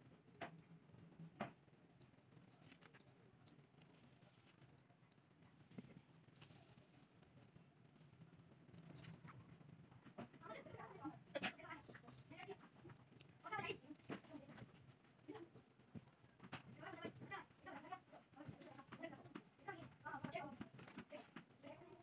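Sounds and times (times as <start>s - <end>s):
faint paper taps and rustles: 8.8s - 22.0s.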